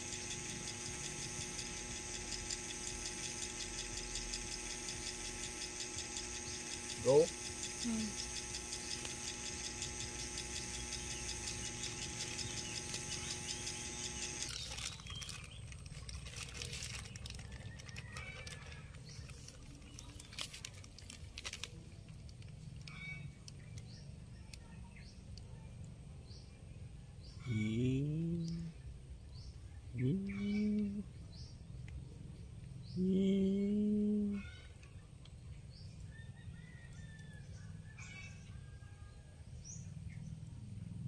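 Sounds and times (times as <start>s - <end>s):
small engine humming: 0.0s - 26.4s, 27.5s - 28.8s
plastic bag crinkling: 14.4s - 22.6s.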